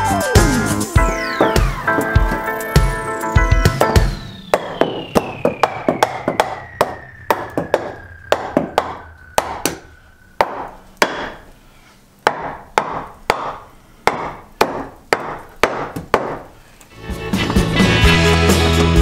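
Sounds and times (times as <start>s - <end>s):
hammer blows on wood: 3.6s - 11.4s.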